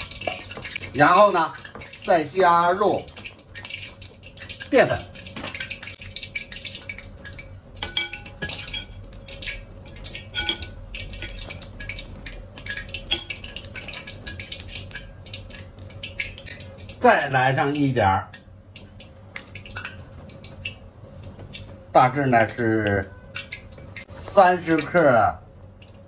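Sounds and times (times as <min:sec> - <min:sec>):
metal spoon clinking on glass: 0:07.8 - 0:09.0, 0:10.3 - 0:11.5, 0:13.1 - 0:13.4.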